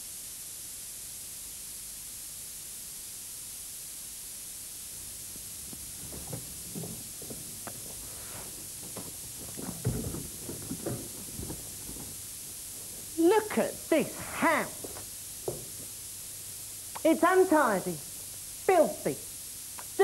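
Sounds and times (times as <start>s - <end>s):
videotape hiss: 0.0s - 20.0s
soft knocks and rustles: 5.0s - 13.3s, 14.7s - 16.0s.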